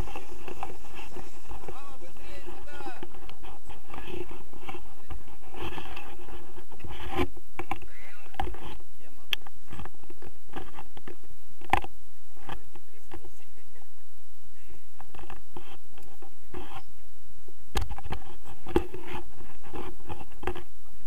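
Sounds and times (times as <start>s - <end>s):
camera pole scraping and clicking: 0.0s - 1.8s, 2.4s - 8.8s, 17.8s - 20.7s
people talking: 0.0s - 5.5s, 7.8s - 9.4s, 12.4s - 15.0s
low rumbling on microphone: 0.0s - 21.0s.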